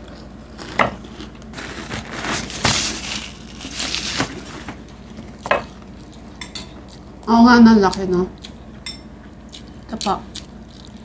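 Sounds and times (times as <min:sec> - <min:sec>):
chips crunching while chewed: 0:00.0 - 0:07.1.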